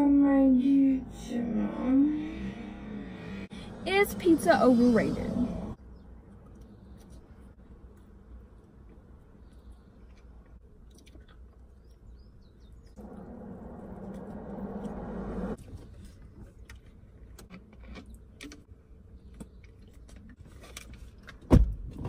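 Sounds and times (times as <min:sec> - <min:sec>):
biting and chewing: 0:06.2 - 0:21.3.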